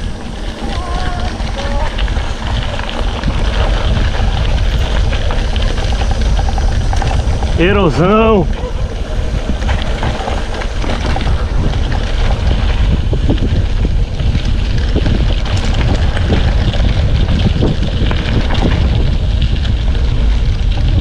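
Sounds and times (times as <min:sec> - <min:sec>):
bike rattles and knocks: 0:00.0 - 0:21.0
wind buffeting microphone: 0:00.0 - 0:21.0.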